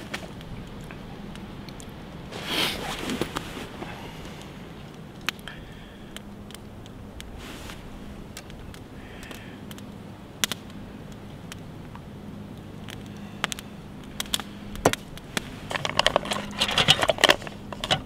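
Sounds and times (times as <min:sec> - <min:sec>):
rustling and clattering in pot: 0:02.3 - 0:04.5, 0:14.3 - 0:18.0.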